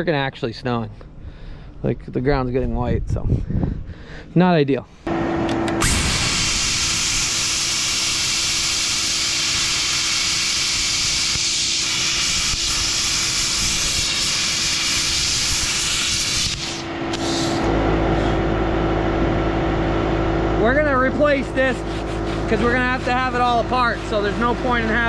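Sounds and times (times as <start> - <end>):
machine hum with low drone: 4.9 - 25.0
short blasts of plasma cutter: 5.5 - 18.4
plasma cutter torch hissing: 5.8 - 17.6.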